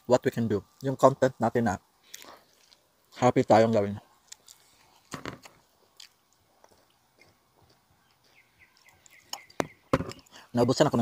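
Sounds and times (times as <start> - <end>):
chewing and lip smacks: 2.0 - 2.9, 4.2 - 9.6.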